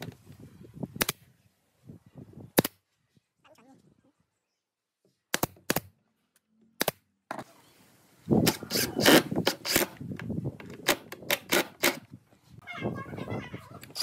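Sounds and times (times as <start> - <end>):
nail gun shots into wood: 5.3 - 5.9.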